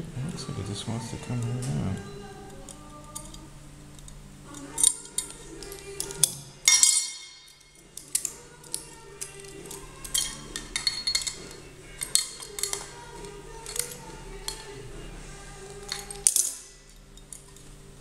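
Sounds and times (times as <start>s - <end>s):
faint background music: 0.0s - 18.0s
metal clicks and clinks of pliers: 2.7s - 3.4s, 4.0s - 14.7s, 15.8s - 17.6s.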